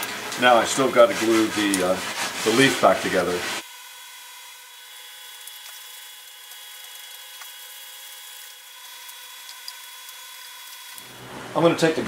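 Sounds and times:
steady hiss: 0.0 - 3.7
faint electrical whine: 0.0 - 12.0.

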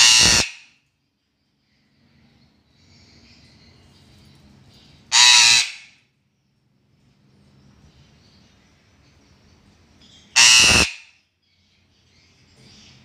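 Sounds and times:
parrot harsh squawks: 0.0 - 0.8, 5.1 - 6.0, 10.3 - 11.2.

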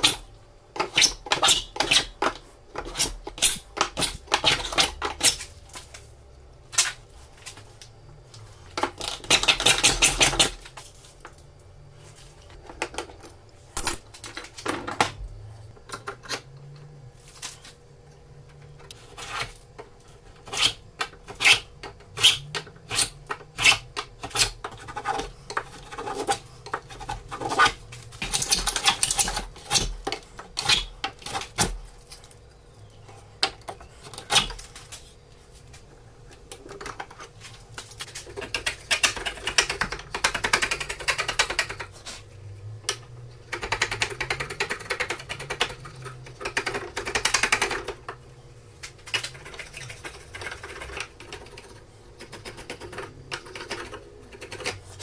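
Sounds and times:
hand tool scraping wood: 20.3 - 31.5.

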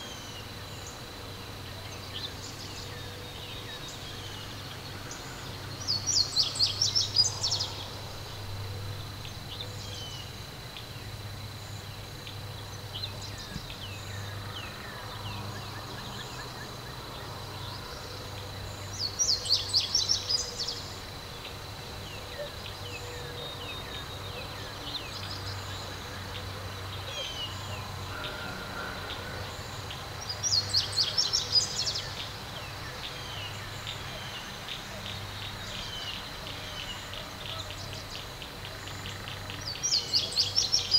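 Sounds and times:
bird singing rapid high song: 0.0 - 10.9, 12.3 - 27.9, 29.5 - 40.9
low background noise: 0.0 - 40.9.

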